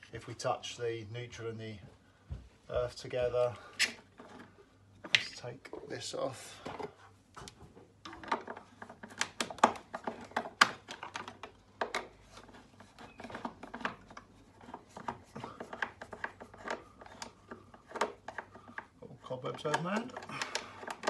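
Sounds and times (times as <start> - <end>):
screwdriver clicking and scraping: 11.9 - 18.8.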